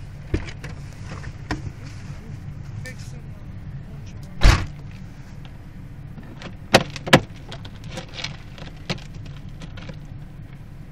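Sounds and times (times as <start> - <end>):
car engine hum from inside: 0.0 - 10.9
loud thump: 4.4 - 4.8.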